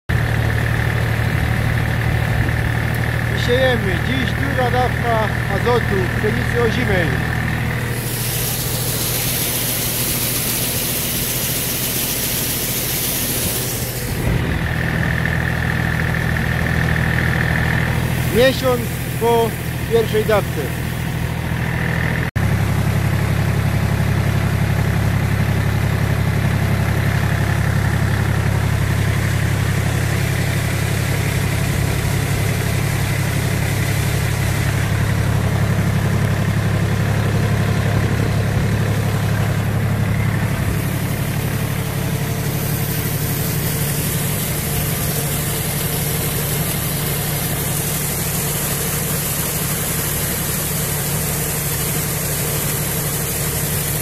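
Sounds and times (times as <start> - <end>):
tractor diesel engine running: 0.1 - 54.0
steady hiss: 8.0 - 14.2.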